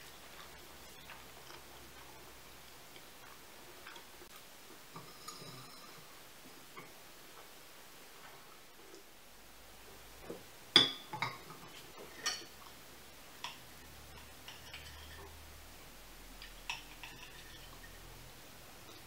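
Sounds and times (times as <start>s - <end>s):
tableware clinks and taps: 10.8s - 11.5s.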